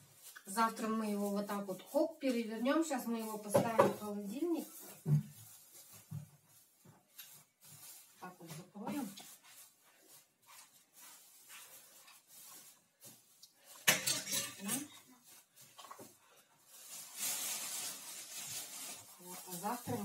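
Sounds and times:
covering rustle: 0.0s - 20.0s.

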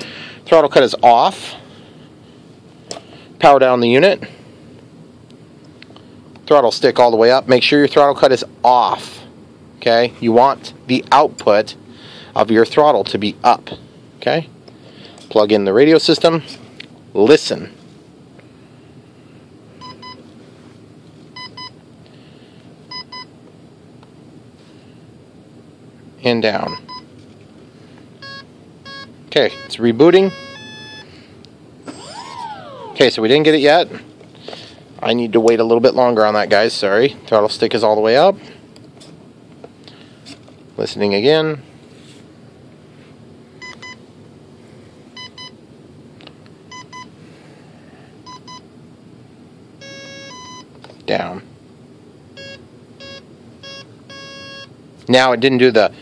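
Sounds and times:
motor speed controller double beeps: 28.2s - 31.1s, 52.4s - 54.7s.

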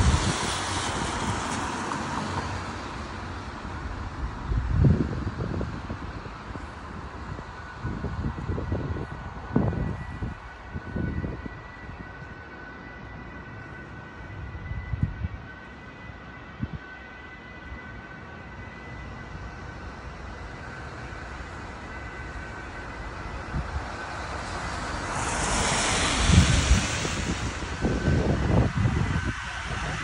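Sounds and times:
wind buffeting microphone: 0.0s - 2.6s, 3.3s - 12.5s, 14.1s - 15.5s, 22.4s - 30.0s
street traffic: 0.0s - 30.0s.

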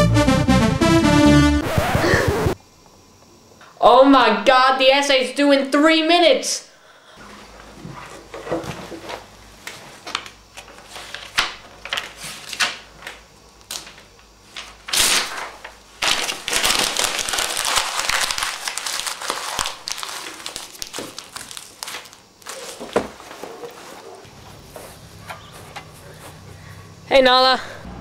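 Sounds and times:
paper rustling: 7.8s - 26.3s
paper crumpling: 10.6s - 24.2s.

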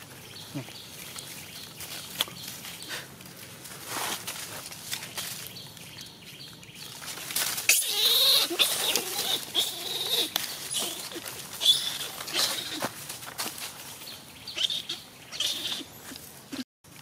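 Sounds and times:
leaves rustling: 0.0s - 14.9s
young monkey squealing: 7.7s - 12.8s, 14.6s - 15.9s.

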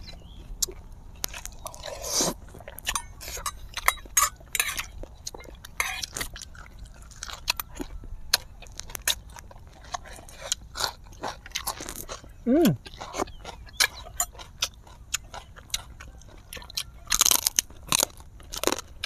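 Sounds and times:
chewing and crunching food: 0.0s - 19.0s
wet mouth sounds: 0.6s - 3.4s, 11.6s - 15.2s.

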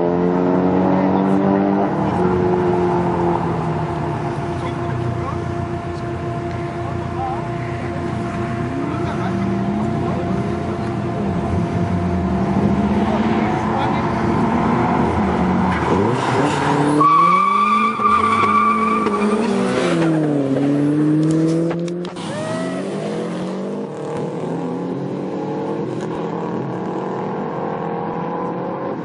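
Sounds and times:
car engine accelerating hard: 0.0s - 29.0s
tyre squeal: 15.7s - 20.2s.

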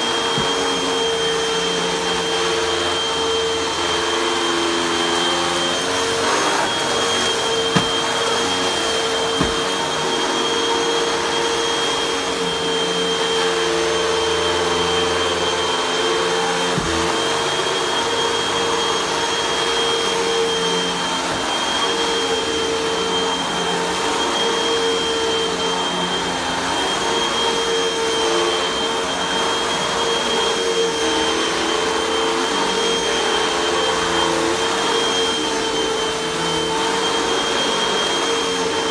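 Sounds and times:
vacuum cleaner running: 0.0s - 38.9s.

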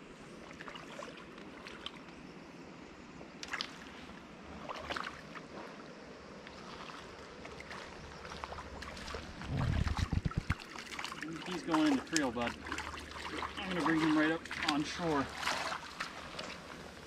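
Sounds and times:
creek water washing: 0.0s - 2.5s, 3.3s - 17.0s
water splashes: 0.4s - 2.1s, 3.4s - 5.8s, 6.5s - 17.0s.

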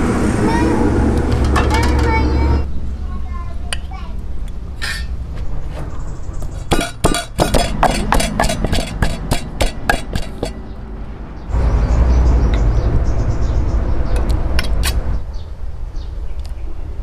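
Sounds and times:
pestle pounding in wooden mortar: 6.7s - 10.6s.

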